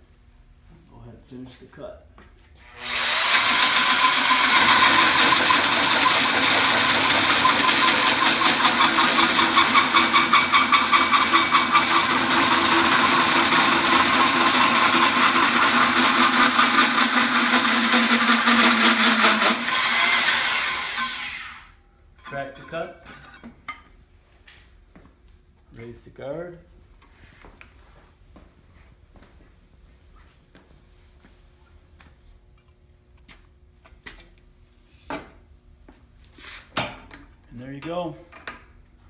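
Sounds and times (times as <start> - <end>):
drill with hole saw cutting steel: 2.6 - 23.4.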